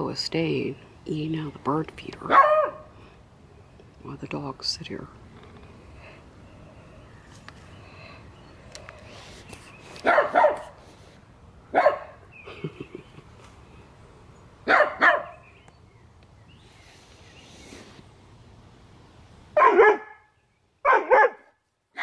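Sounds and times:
dog barking: 0:02.3 - 0:02.9, 0:10.0 - 0:10.8, 0:11.7 - 0:12.2, 0:14.7 - 0:15.4, 0:19.6 - 0:22.0.

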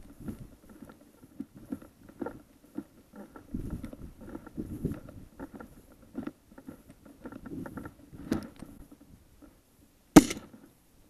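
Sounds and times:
footsteps through dry grass: 0:00.0 - 0:09.5
shotgun shot: 0:10.2 - 0:10.5.

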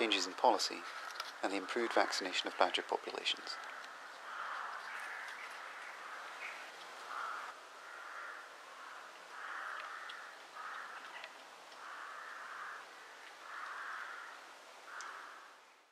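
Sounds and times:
faint clicks: 0:03.5 - 0:05.9, 0:09.1 - 0:12.0, 0:14.9 - 0:15.2
bird giving harsh calls: 0:03.6 - 0:11.2.

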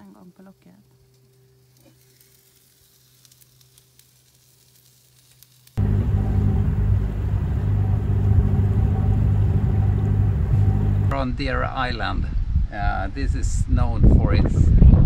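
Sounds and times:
corn sizzling on a grill: 0:00.0 - 0:11.1
boat motor rumbling: 0:05.8 - 0:11.1.

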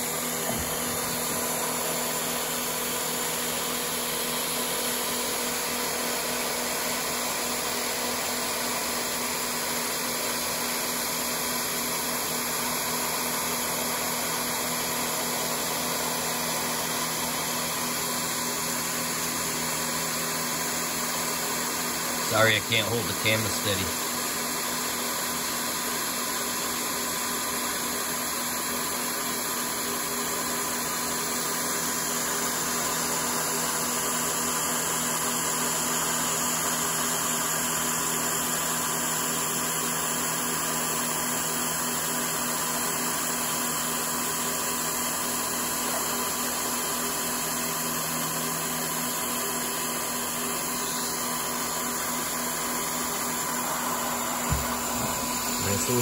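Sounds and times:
milling machine cutting metal: 0:00.0 - 0:28.7, 0:30.4 - 0:56.0
spindle whine: 0:50.6 - 0:56.0.

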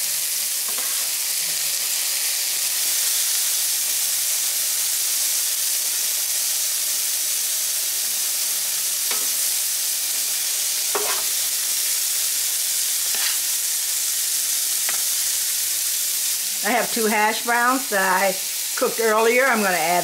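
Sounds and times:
food sizzling on a griddle: 0:00.0 - 0:20.0
spatula scraping griddle: 0:00.7 - 0:01.2, 0:10.9 - 0:11.4, 0:12.9 - 0:13.6.

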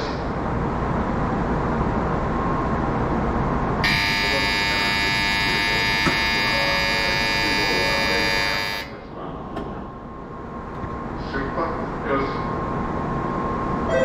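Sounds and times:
steady background hum: 0:00.0 - 0:14.0
platform departure buzzer: 0:03.8 - 0:09.0.

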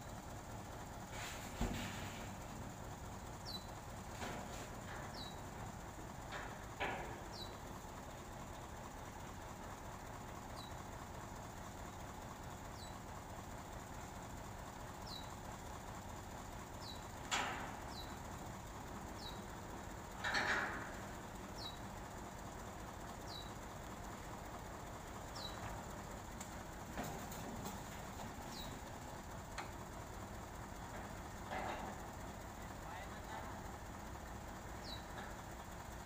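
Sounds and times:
truck engine running hydraulics: 0:00.0 - 0:32.8
bird chirping: 0:03.4 - 0:03.7, 0:05.1 - 0:05.4, 0:07.3 - 0:07.6, 0:15.0 - 0:15.3, 0:16.8 - 0:17.0, 0:19.2 - 0:19.5, 0:21.6 - 0:21.8, 0:23.3 - 0:23.5, 0:25.3 - 0:25.6, 0:28.5 - 0:28.8, 0:34.8 - 0:35.2.

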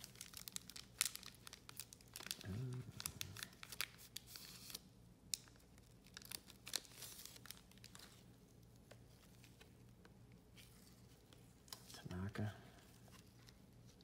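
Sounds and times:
plastic sheets crackling: 0:00.0 - 0:09.7
trading cards crinkling: 0:00.0 - 0:09.8.

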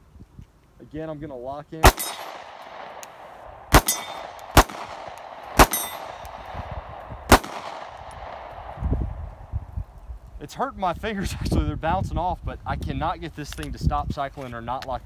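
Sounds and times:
pistol shots with echo: 0:01.8 - 0:08.8.

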